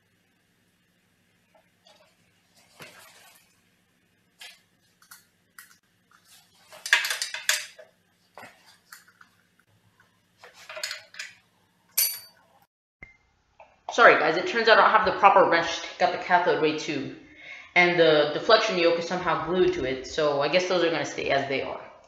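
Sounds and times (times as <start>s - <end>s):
metal tools clinking on metal: 6.7s - 7.8s, 10.6s - 11.4s, 12.0s - 12.4s.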